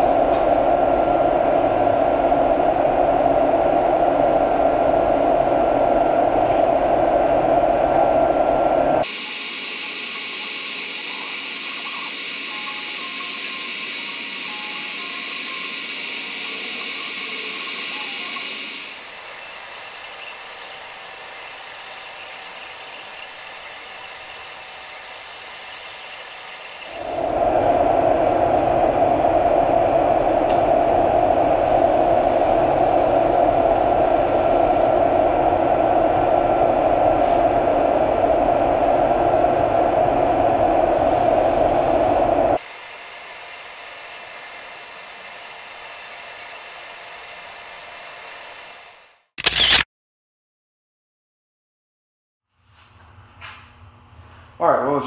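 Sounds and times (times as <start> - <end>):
spray paint hissing: 9.0 - 27.6.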